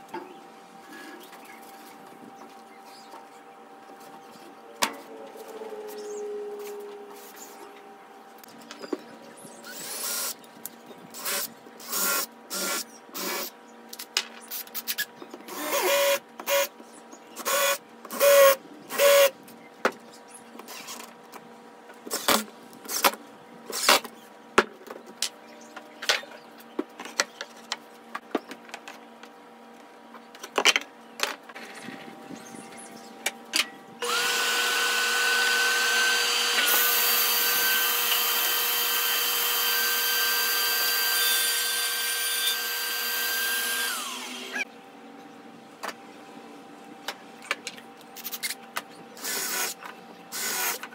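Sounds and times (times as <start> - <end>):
cordless drill driving screws: 34.0 - 44.6
table saw running: 34.0 - 44.6.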